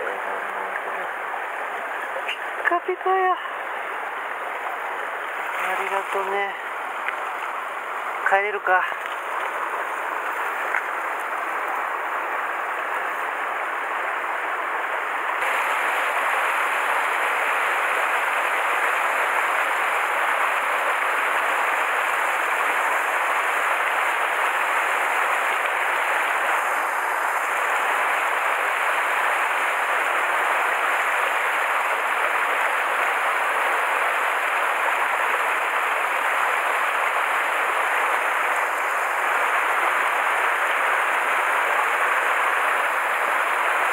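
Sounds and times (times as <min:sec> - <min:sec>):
stream rushing over boulders: 0:00.0 - 0:43.9.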